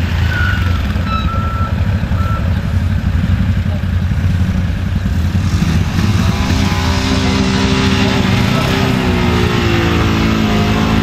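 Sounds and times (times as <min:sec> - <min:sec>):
engines rumbling: 0:00.0 - 0:11.0
reversing alarm beeps: 0:00.3 - 0:02.6.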